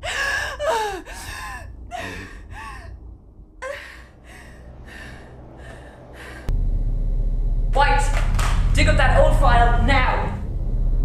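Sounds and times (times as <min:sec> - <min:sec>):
woman sobbing: 0:00.0 - 0:02.9, 0:03.6 - 0:04.5.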